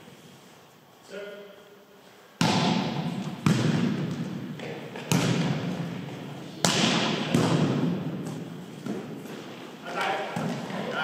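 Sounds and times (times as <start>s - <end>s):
volleyball slaps echoing in gym: 2.4s - 11.0s.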